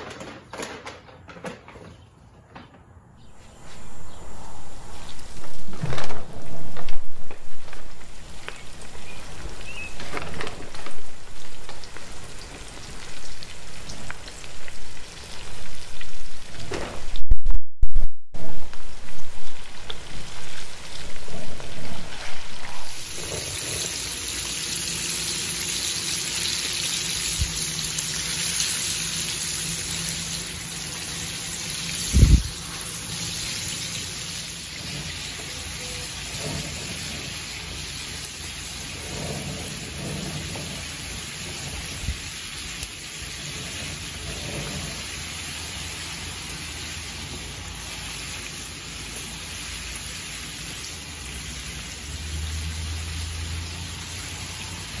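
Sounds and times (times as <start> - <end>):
chicken sizzling in hot oil: 11.3 - 16.7, 19.4 - 55.0.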